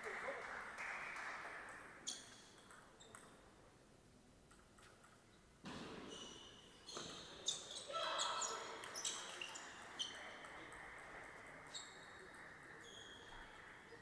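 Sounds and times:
ball bouncing on table: 2.4s - 3.4s.

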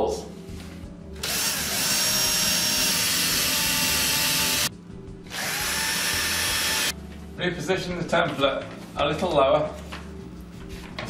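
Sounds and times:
cordless drill drilling: 1.2s - 4.7s, 5.3s - 6.9s.

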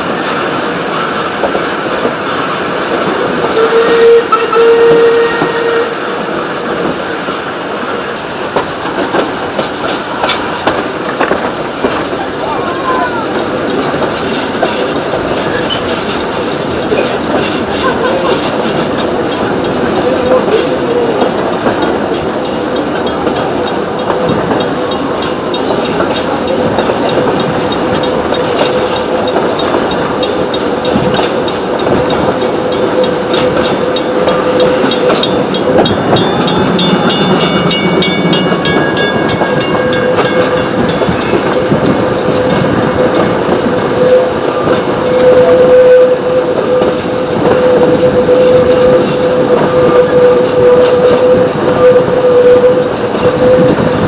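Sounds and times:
train wheels rumbling on rails: 0.0s - 54.0s
level-crossing bell ringing: 32.1s - 41.7s.

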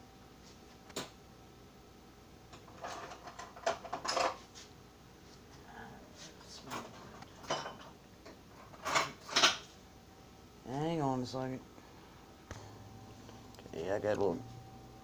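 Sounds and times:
dishes and utensils clinking: 2.7s - 4.4s, 6.7s - 8.0s, 8.6s - 9.7s.

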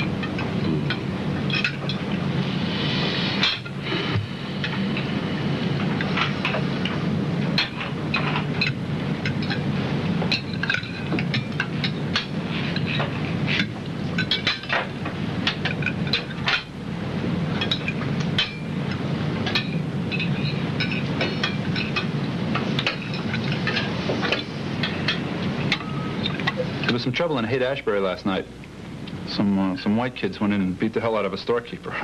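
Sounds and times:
glasses and dishes clinking: 0.0s - 2.0s, 10.3s - 16.7s, 17.6s - 18.7s, 19.4s - 27.0s
steady low din: 0.0s - 32.0s.

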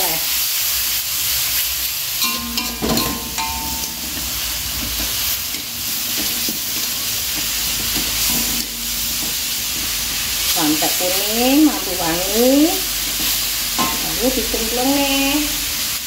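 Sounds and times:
spice paste sizzling in a wok: 0.0s - 16.0s
metal spatula scraping a pan: 2.2s - 14.3s.

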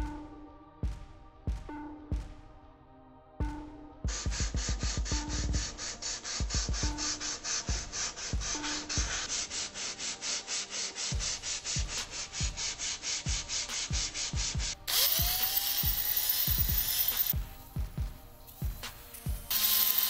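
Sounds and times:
drill spinning with whine: 14.7s - 17.4s, 18.6s - 20.0s.

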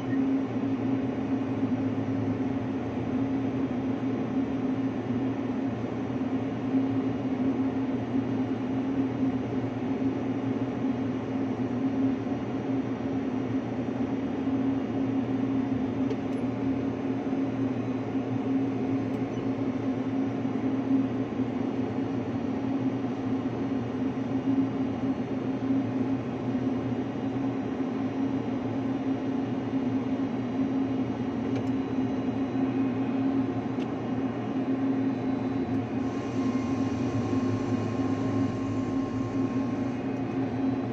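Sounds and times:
ship machinery drone: 31.4s - 40.9s.

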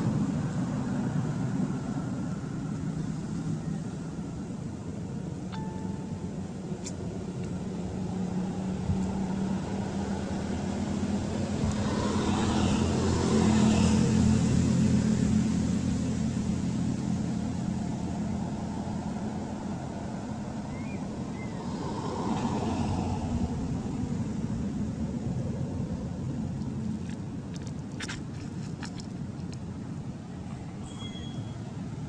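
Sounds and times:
motor engine passing by: 8.1s - 16.0s.

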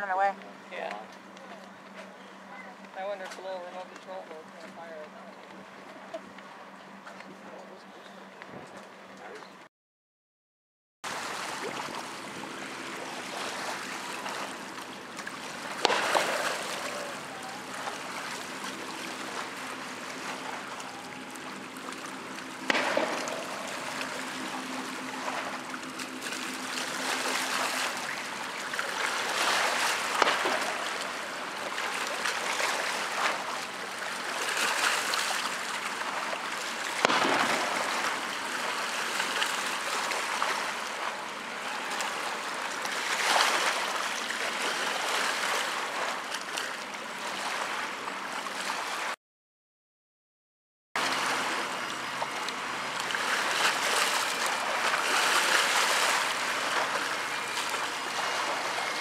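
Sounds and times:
water splashing against boat hull: 11.1s - 47.8s, 51.0s - 59.0s.

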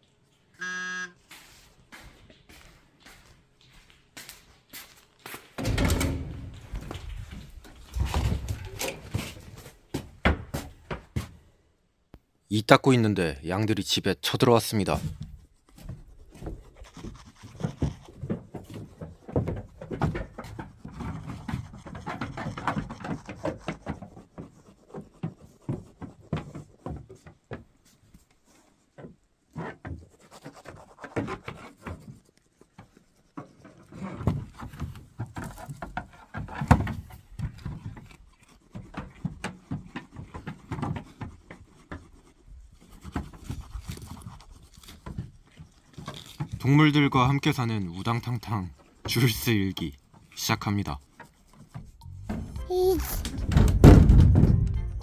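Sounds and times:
scuffing and rubbing: 0.2s - 5.6s
hooves knocking on floor: 14.9s - 28.2s, 32.8s - 44.2s.

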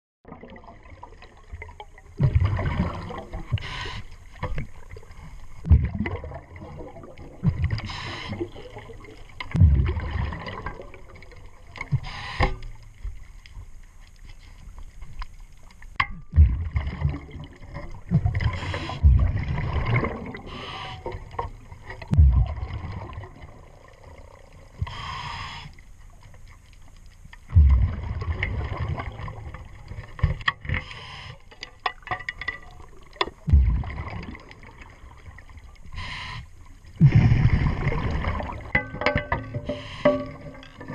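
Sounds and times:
exhaled bubbles bursting: 0.3s - 3.6s, 5.6s - 11.6s, 16.3s - 20.6s, 22.0s - 24.6s, 27.5s - 30.1s, 32.9s - 35.6s, 37.0s - 40.9s
diver breathing through regulator: 3.5s - 4.2s, 7.8s - 8.7s, 11.9s - 12.7s, 18.4s - 19.3s, 20.4s - 21.4s, 24.8s - 25.8s, 30.7s - 31.5s, 35.9s - 36.6s, 39.6s - 40.6s
low knocks and handling thumps: 16.0s - 16.8s, 33.4s - 34.0s.

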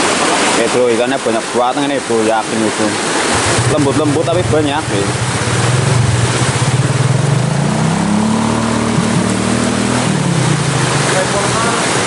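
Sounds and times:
flowing river water: 0.0s - 12.0s
engine humming: 3.2s - 12.0s.

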